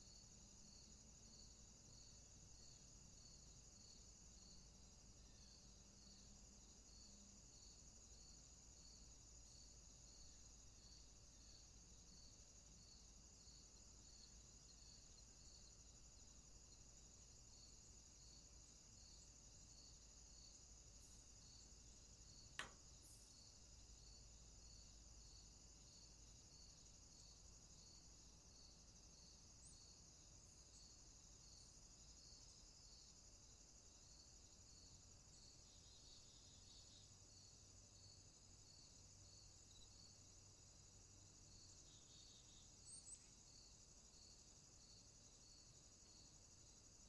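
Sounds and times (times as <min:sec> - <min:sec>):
crickets trilling and chirping: 0:00.0 - 0:47.0
sharp click: 0:22.6 - 0:22.8.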